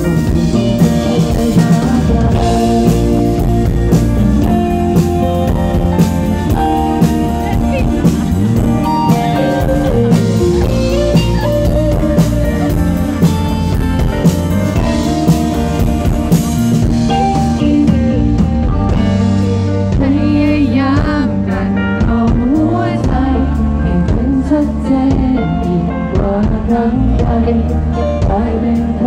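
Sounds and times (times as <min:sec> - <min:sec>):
drum kit steady beat: 0:00.0 - 0:24.5
acoustic-electric guitar: 0:00.0 - 0:29.0
electric bass: 0:00.0 - 0:29.0
woman singing into a microphone: 0:18.9 - 0:29.0.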